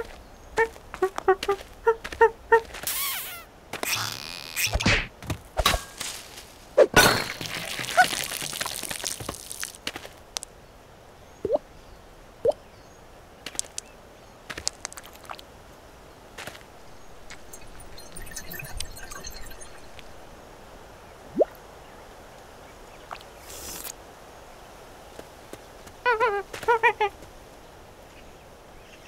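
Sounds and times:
short rising squeaks: 0:02.8 - 0:04.9
noisy rush: 0:16.6 - 0:21.2.

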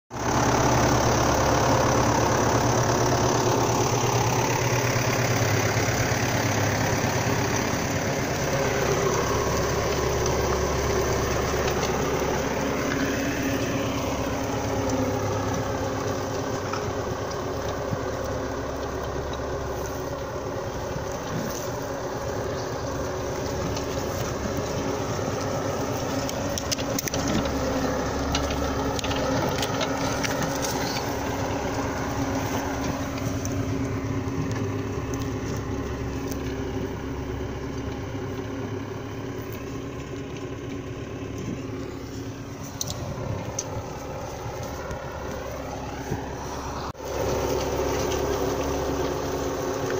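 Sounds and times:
tractor diesel engine under load: 0:00.0 - 0:49.9.

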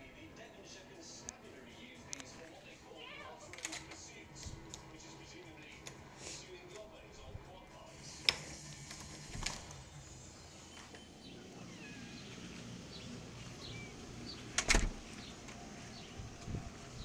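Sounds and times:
door latch clicking: 0:14.5 - 0:15.1.

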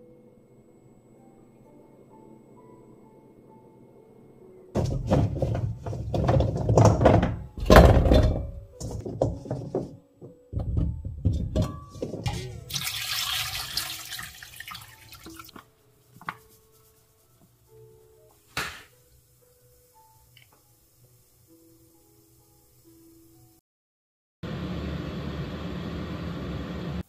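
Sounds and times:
knocks: 0:04.8 - 0:12.3
running water stream: 0:12.6 - 0:15.6
water splashing and sloshing: 0:12.6 - 0:15.6.

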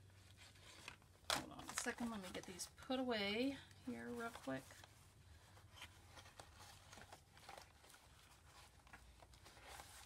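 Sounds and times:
rustling of cardboard box: 0:03.9 - 0:10.0.

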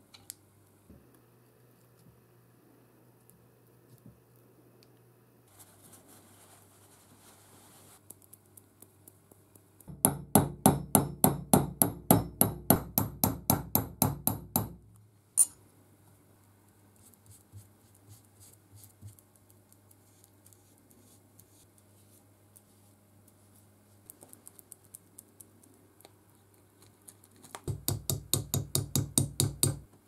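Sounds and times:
hammer striking metal punch: 0:09.9 - 0:14.8.

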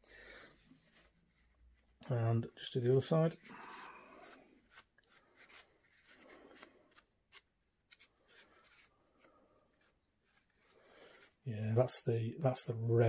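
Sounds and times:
tissue rubbing painted figure: 0:00.5 - 0:02.0, 0:03.3 - 0:11.5.

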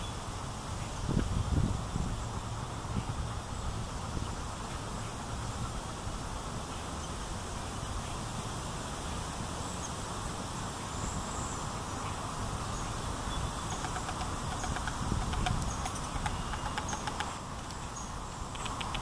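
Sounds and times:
high bird chirps: 0:13.3 - 0:17.3
bird ticking calls: 0:13.3 - 0:19.0.

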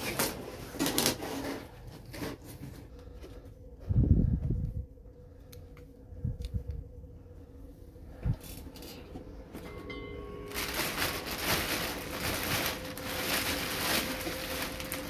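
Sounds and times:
plastic bag crinkling: 0:10.3 - 0:15.0.

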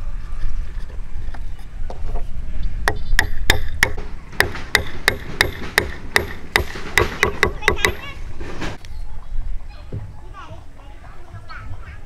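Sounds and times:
hammer tapping wooden beam: 0:02.9 - 0:08.0.

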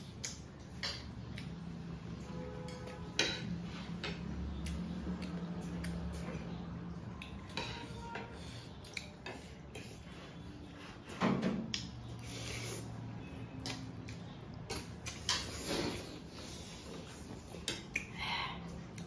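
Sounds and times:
cutlery clinking on plates: 0:02.7 - 0:04.2.

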